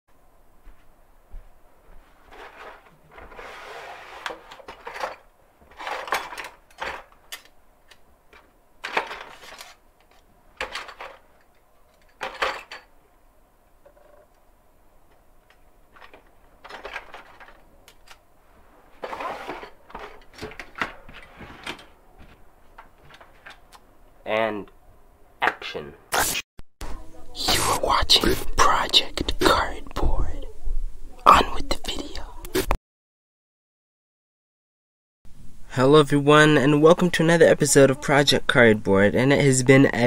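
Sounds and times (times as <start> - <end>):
tools and bottles clinking: 4.4 - 7.5, 10.6 - 13.0.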